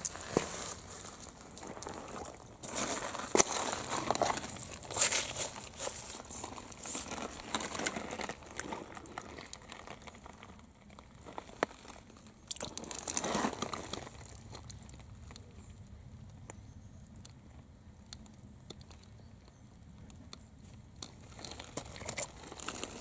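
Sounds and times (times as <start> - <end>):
wet gravel crunching and rustling: 0.0 - 15.9, 20.7 - 23.0
sharp clicks of pebbles: 0.0 - 17.4, 18.0 - 23.0.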